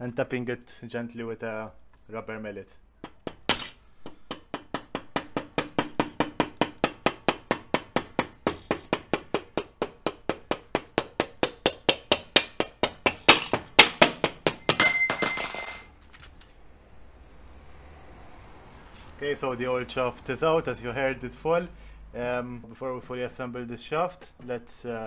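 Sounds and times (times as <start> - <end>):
rubber mallet tapping on metal shaft: 3.0 - 14.9
metal shaft clattering and ringing: 14.6 - 16.0.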